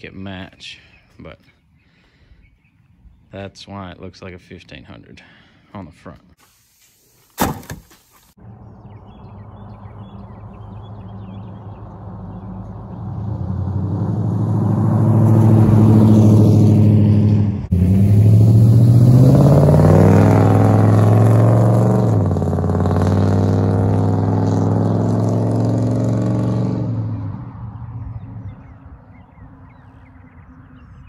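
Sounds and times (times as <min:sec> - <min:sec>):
pickup truck engine accelerating: 0:08.4 - 0:29.0.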